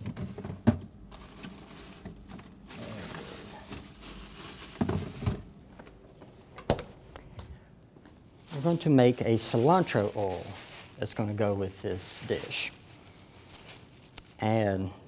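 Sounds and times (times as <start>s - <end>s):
items knocking against shelves: 0.0s - 2.5s, 4.7s - 7.0s
packaging rustling: 0.0s - 7.2s, 8.0s - 14.6s
refrigerator door shutting: 6.6s - 7.0s.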